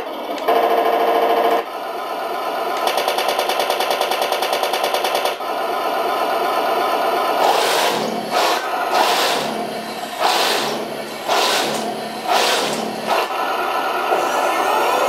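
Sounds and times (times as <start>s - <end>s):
simulated engine sound: 5.2s - 15.0s
loud noisy burst: 7.2s - 15.0s
toy tank machine-gun effect: 7.4s - 15.0s.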